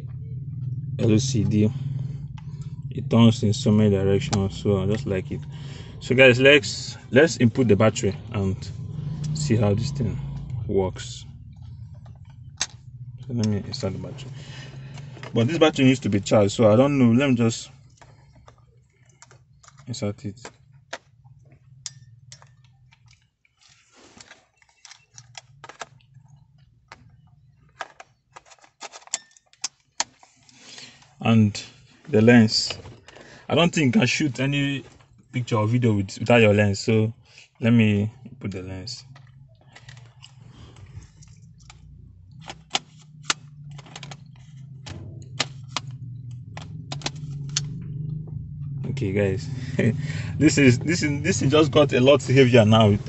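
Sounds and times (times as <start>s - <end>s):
low steady hum: 0.0s - 53.0s.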